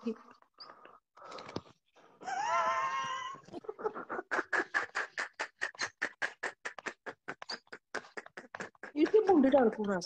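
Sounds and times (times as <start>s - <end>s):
fast bursts of laughter: 3.3s - 9.8s.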